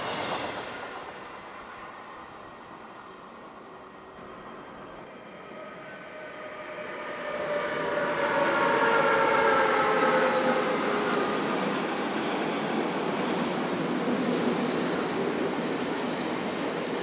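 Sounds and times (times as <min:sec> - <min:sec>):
train passing: 0:00.0 - 0:17.0.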